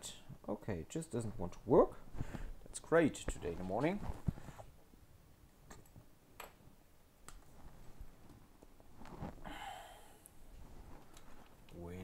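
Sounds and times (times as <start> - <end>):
faint clicks and handling noise: 10.2 - 12.0.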